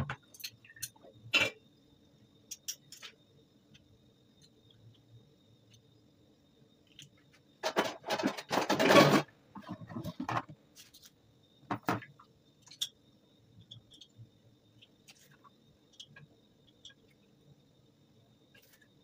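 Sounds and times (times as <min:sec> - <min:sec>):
plastic plates clattering: 0:07.6 - 0:10.5.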